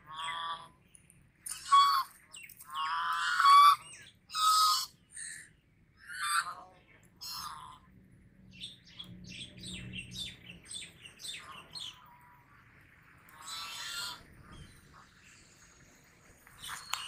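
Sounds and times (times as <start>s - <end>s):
geese honking: 2.7s - 5.0s, 13.3s - 15.1s.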